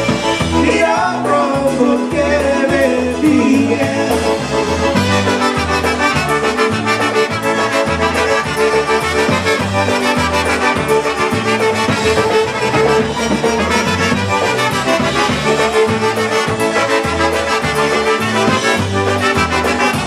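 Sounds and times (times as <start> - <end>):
bass rhythm: 0.0 - 20.0
trumpets playing melody: 0.0 - 20.0.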